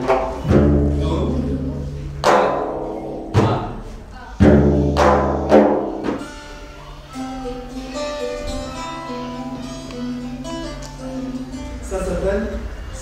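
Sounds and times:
deep drum strikes: 0:00.0 - 0:06.3
lute plucked melody: 0:00.0 - 0:13.0.

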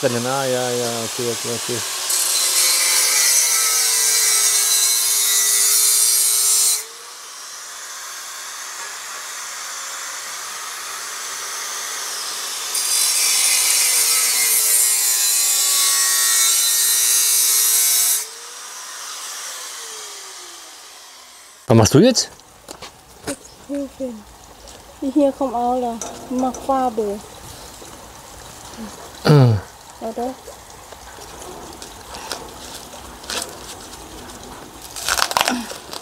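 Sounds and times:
electric grinder on metal: 0:00.0 - 0:21.7
grinder winding down: 0:17.0 - 0:21.6.

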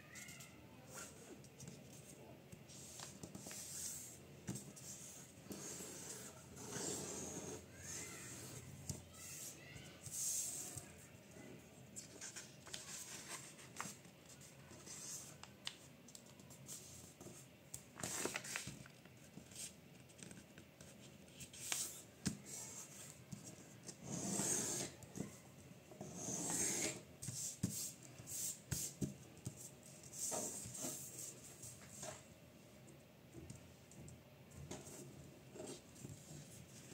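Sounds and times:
paper rustling: 0:18.0 - 0:20.2
paper being folded and creased: 0:18.0 - 0:20.4.

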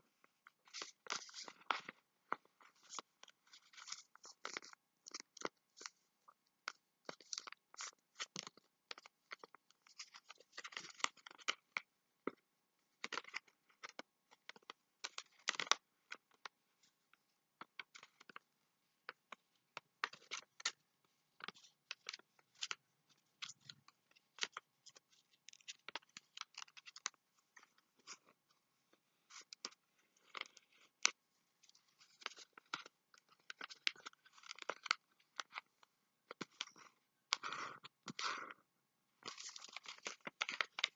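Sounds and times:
paper crinkling and rustling: 0:00.6 - 0:02.0, 0:39.2 - 0:40.9.

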